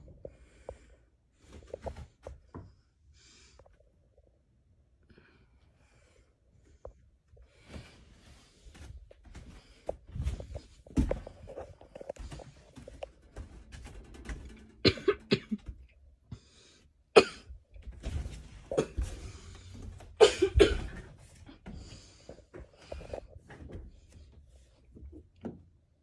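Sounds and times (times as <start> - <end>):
person coughing: 14.8 - 15.7, 17.2 - 17.5, 18.7 - 19.2, 20.2 - 21.1.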